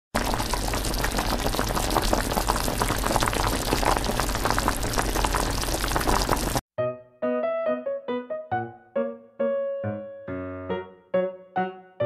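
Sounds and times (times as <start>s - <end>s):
water boiling with pops: 0.2s - 6.6s.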